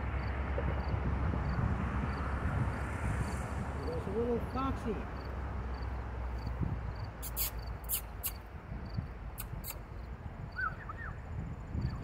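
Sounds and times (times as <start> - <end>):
sharp high chirps: 7.2 - 8.4
bird chirps: 10.5 - 11.2.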